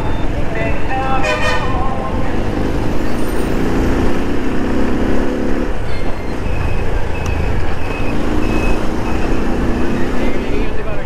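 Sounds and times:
short high beeps: 0:05.9 - 0:09.6.

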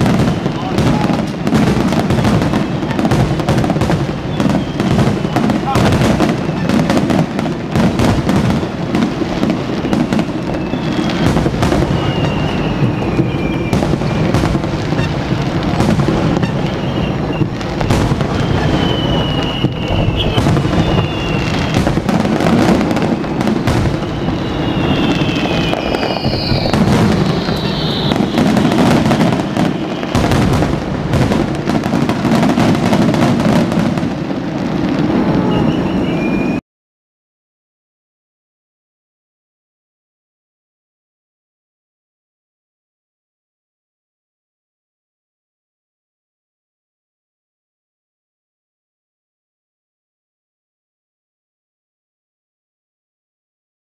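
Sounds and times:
firework bursts and crackles: 0:00.0 - 0:36.6
firework whistles: 0:00.0 - 0:36.6.

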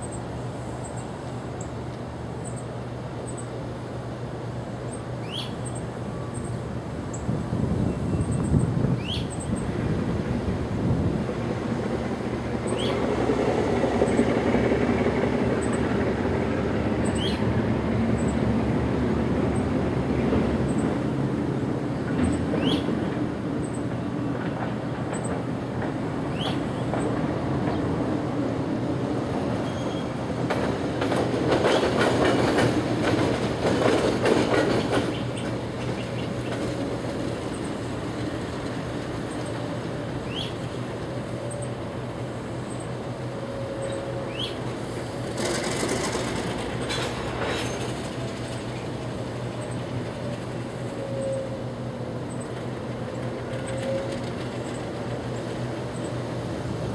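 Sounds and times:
diesel locomotive engine drone: 0:00.0 - 0:56.9
bird chirps: 0:05.2 - 0:05.8
wheels clattering over rail joints: 0:29.6 - 0:41.6, 0:43.7 - 0:51.4.

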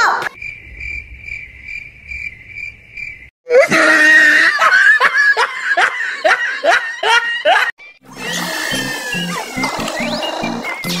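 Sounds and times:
cricket chirping: 0:00.4 - 0:03.3
loud laughter: 0:03.5 - 0:07.8.

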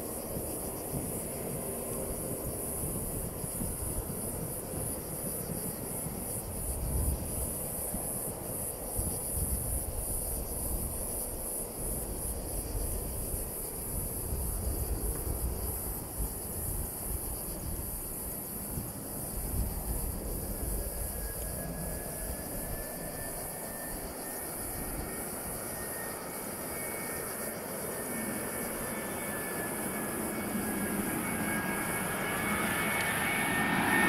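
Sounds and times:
distant jet engines rumbling: 0:11.7 - 0:34.0
high-pitched insect buzz: 0:11.9 - 0:34.0.

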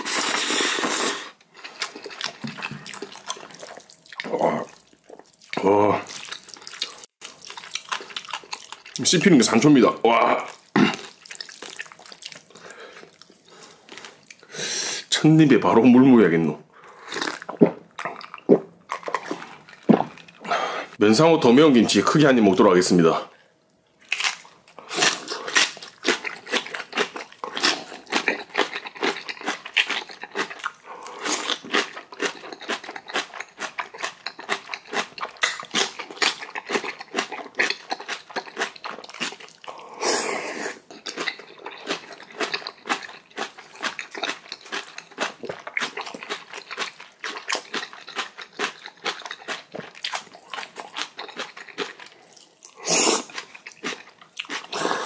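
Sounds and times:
crunchy chewing: 0:00.1 - 0:09.1, 0:24.0 - 0:55.0.

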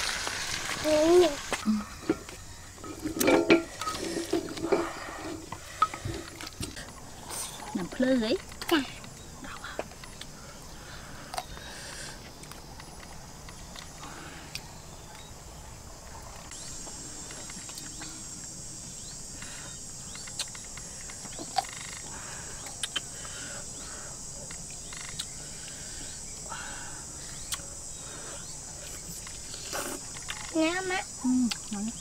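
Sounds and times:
high-pitched insect chorus: 0:00.0 - 0:32.0
small clicks and smacks of eating: 0:20.1 - 0:23.4, 0:24.4 - 0:25.8, 0:27.3 - 0:27.7, 0:28.8 - 0:30.6, 0:31.4 - 0:32.0.

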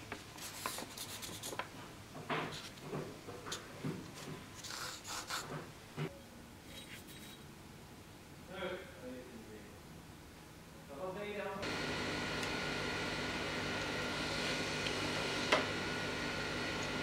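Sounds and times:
marker scratching on paper: 0:00.4 - 0:01.6, 0:04.6 - 0:05.5.

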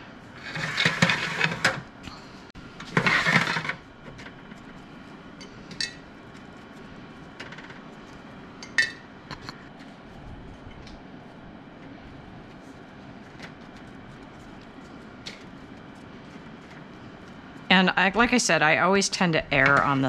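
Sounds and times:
wire scraping on metal: 0:00.3 - 0:01.8, 0:02.8 - 0:04.7.

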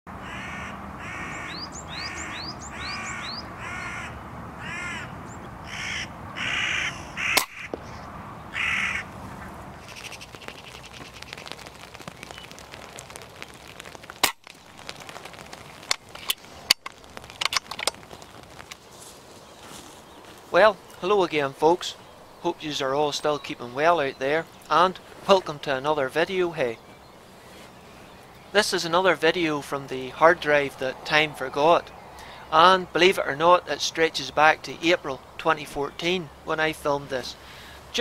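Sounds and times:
crows cawing: 0:00.2 - 0:11.9
sharp clicks and cracks: 0:09.8 - 0:18.9.

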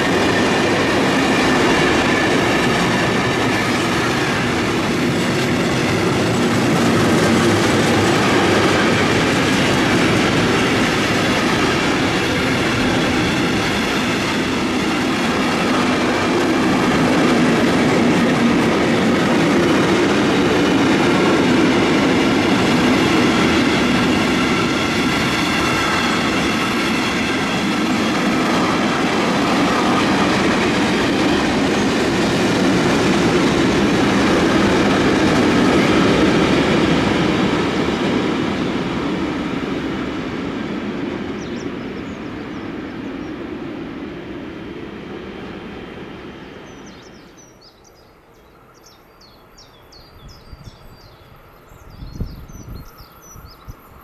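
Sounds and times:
freight train rolling past: 0:00.0 - 0:54.0
bird chirps: 0:46.7 - 0:54.0.

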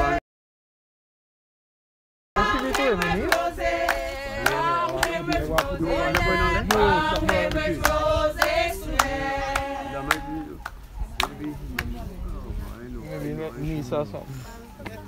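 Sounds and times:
people singing a slow hymn: 0:00.0 - 0:00.2, 0:02.4 - 0:12.7
handclaps keeping time: 0:02.4 - 0:11.9.

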